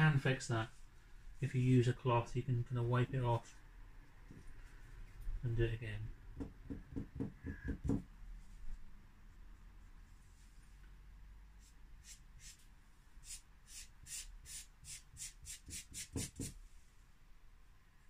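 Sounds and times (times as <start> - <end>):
dull knocks: 6.4 - 8.1.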